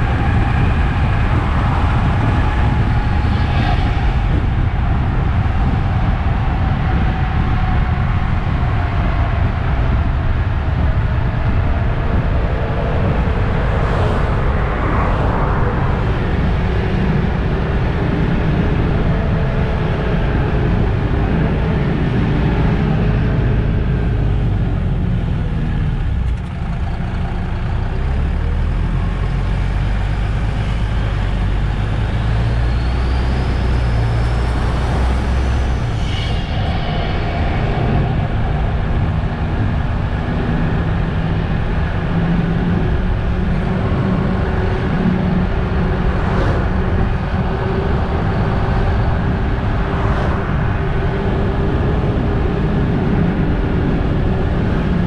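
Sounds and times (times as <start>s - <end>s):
bus diesel engine running: 15.2s - 55.0s.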